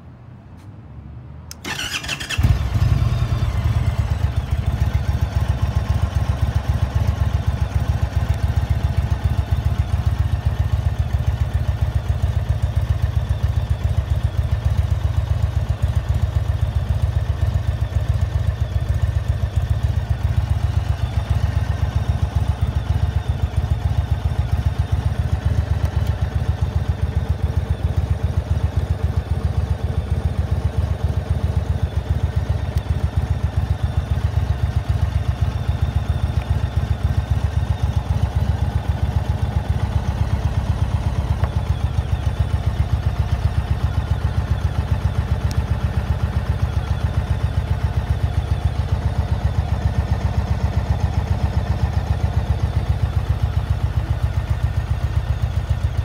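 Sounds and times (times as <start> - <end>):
electric starter cranking: 1.5 - 2.7
motorcycle engine idling: 1.5 - 56.0.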